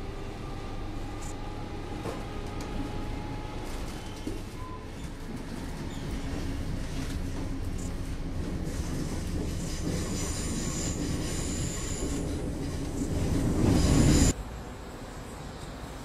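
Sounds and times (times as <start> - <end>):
high squeal: 13.6 - 14.4.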